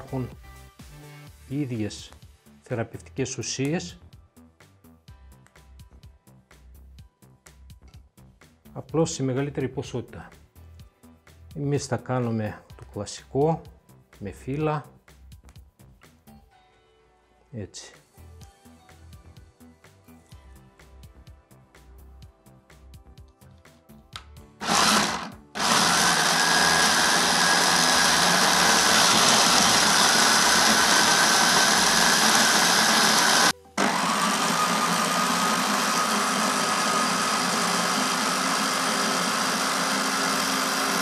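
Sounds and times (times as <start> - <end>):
electric chopper motor whining: 24.6 - 41.0.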